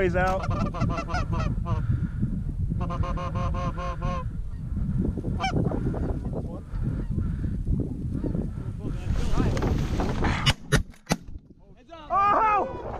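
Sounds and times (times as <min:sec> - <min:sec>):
low wind rumble: 0:00.0 - 0:12.9
goose call honks and clucks: 0:00.3 - 0:01.9, 0:02.8 - 0:04.3, 0:05.4 - 0:06.2.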